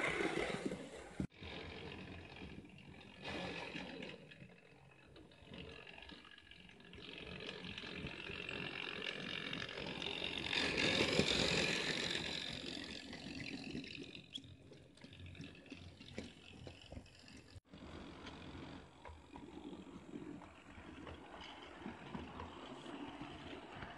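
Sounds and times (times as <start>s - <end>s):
model train running on track: 1.3s - 23.9s.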